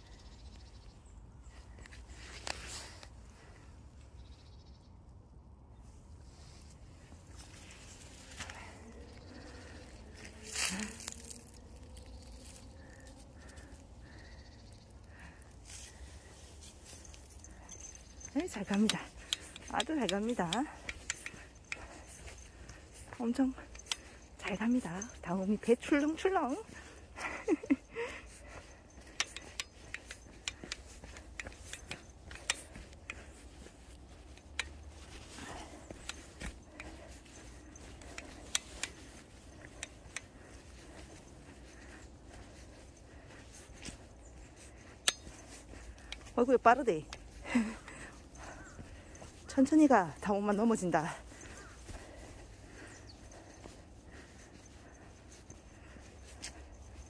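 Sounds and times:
dry leaves crunching underfoot: 0:07.2 - 0:13.9.

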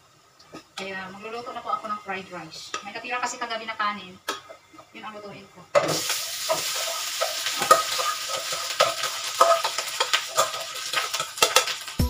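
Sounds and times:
rice sizzling in a frying pan: 0:00.0 - 0:12.0
metal scraping a pan: 0:05.8 - 0:12.0.

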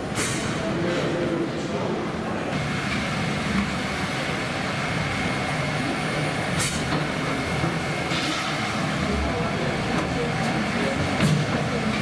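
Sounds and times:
steam engine low mechanical rumble: 0:02.6 - 0:12.0.

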